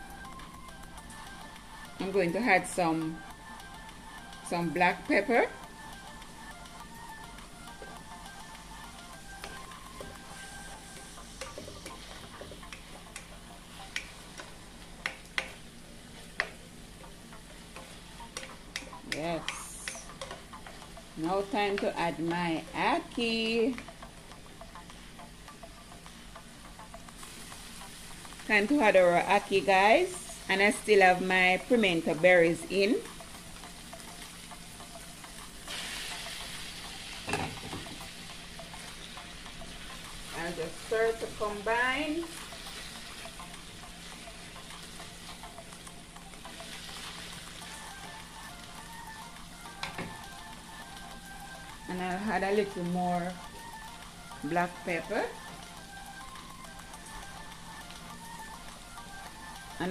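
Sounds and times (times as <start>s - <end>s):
food sizzling in oil: 0.0s - 59.9s
spatula scraping and tapping pan: 9.5s - 22.3s
stirring clicks: 17.7s - 21.0s.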